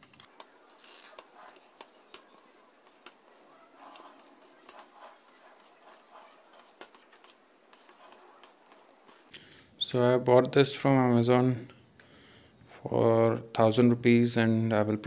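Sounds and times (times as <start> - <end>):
tripod crank clicking and rubbing: 0.0 - 9.4.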